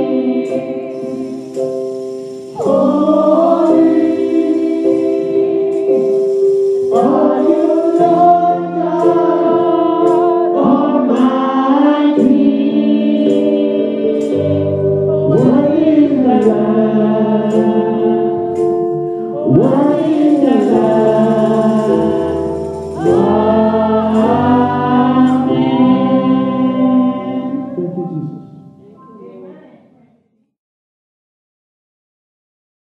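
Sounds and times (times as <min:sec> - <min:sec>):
group of voices singing: 0:00.0 - 0:28.4
keyboard chords: 0:00.0 - 0:29.7.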